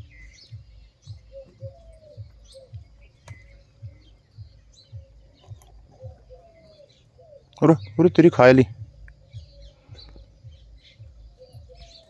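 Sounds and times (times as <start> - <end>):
small birds chirping: 0.0 - 12.0
soft low thumps: 0.0 - 12.0.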